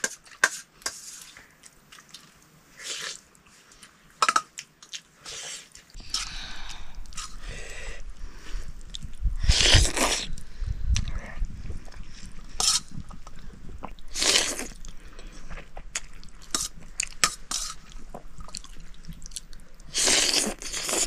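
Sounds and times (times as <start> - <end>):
chewing with small clicks: 1.4 - 2.5, 14.7 - 19.9
loud noodle slurps: 2.8 - 3.2, 9.4 - 10.4, 19.9 - 21.0.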